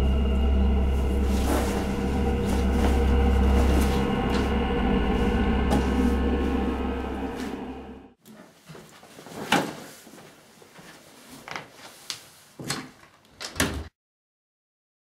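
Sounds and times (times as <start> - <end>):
loud low drone: 0.0 - 8.2
footsteps in small room: 0.0 - 13.3.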